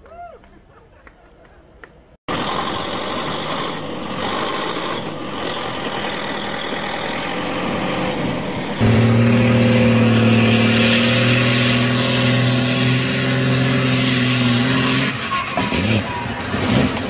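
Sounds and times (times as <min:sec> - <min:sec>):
engine droning: 0:02.3 - 0:17.0
tractor engine rumbling: 0:02.3 - 0:17.0.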